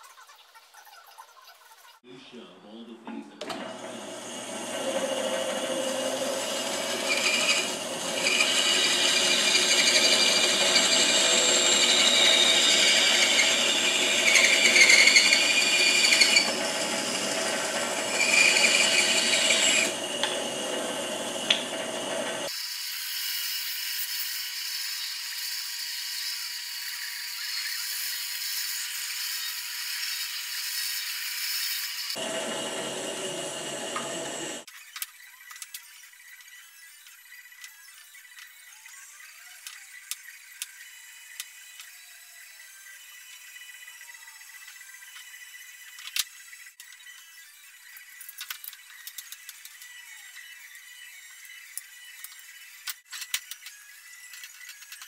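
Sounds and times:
bandsaw cutting wood: 3.4 - 22.7, 30.2 - 34.7.

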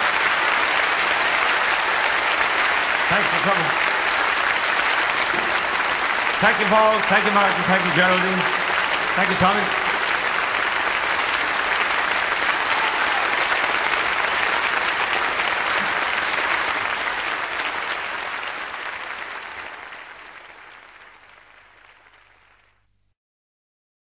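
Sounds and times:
audience applauding: 0.0 - 22.8.

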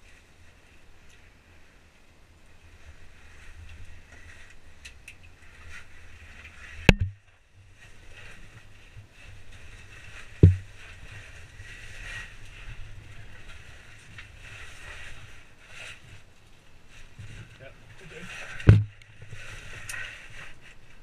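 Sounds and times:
faint steady hiss: 0.0 - 21.0.

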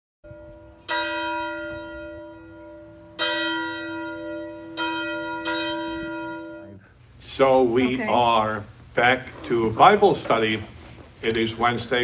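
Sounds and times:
church bell ringing: 0.3 - 6.8.

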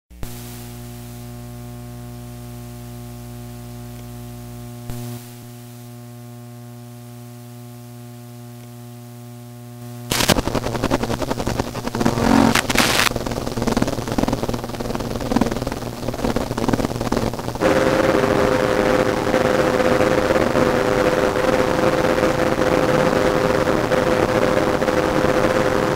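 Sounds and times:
harsh distorted noise music: 10.1 - 10.7, 11.7 - 13.1
drone of held tones: 11.9 - 13.1.

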